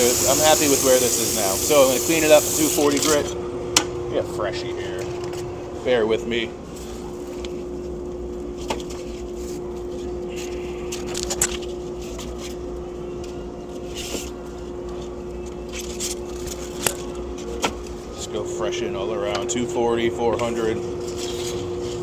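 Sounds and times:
rustling of sanding belts: 0.0s - 3.2s
machine hum: 0.0s - 22.0s.

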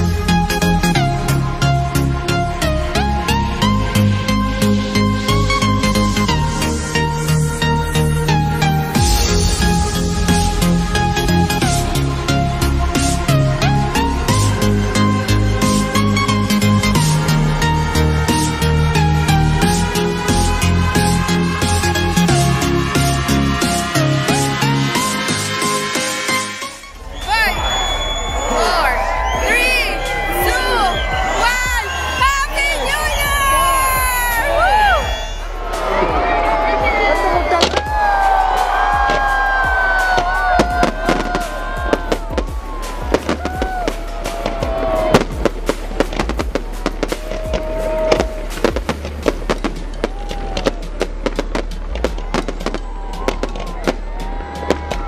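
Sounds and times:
electronic dance music: 0.0s - 55.0s
sliding bass line: 26.9s - 55.0s
fireworks bangs and crackles: 37.2s - 55.0s.

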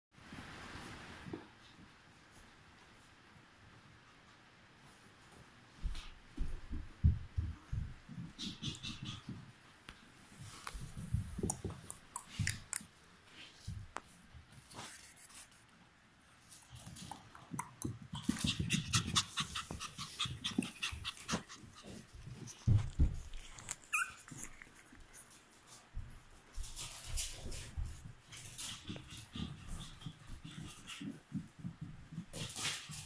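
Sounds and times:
puppies scuffling: 4.8s - 15.6s, 16.4s - 33.0s
dog panting: 7.6s - 9.5s, 18.1s - 24.6s, 28.4s - 31.9s.

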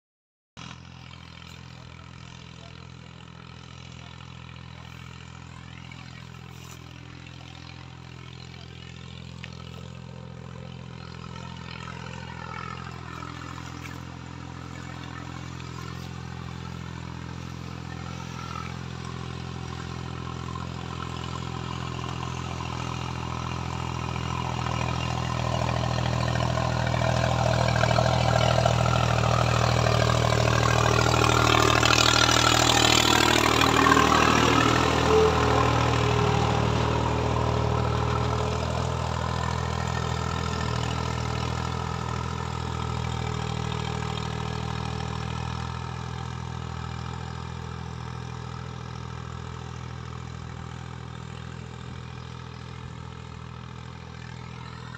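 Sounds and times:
diesel tractor engine running: 0.6s - 54.9s
soil scraping: 10.6s - 23.1s.

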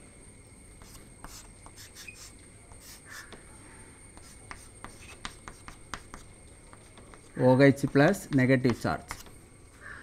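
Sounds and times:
chalk scratching on blackboard: 0.8s - 3.4s, 4.1s - 9.3s.

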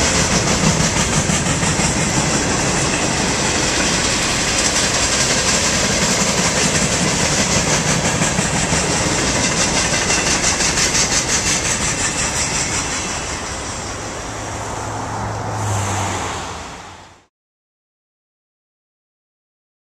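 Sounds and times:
train wheels clacking on rails: 0.0s - 14.5s.

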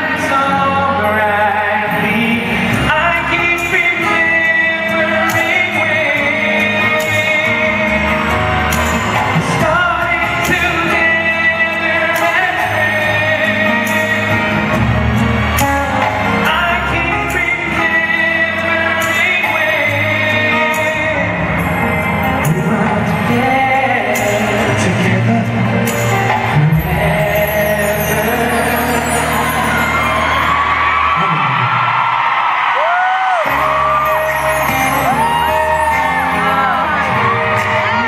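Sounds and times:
male vocal group singing: 0.0s - 15.0s, 22.4s - 30.5s
acoustic guitar: 0.0s - 31.5s, 33.3s - 38.0s.

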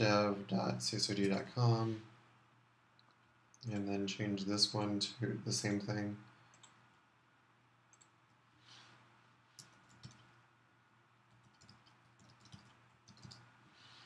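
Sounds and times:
low steady hum: 0.0s - 14.0s
keyboard typing: 6.5s - 6.8s, 9.6s - 10.4s, 11.3s - 13.5s.

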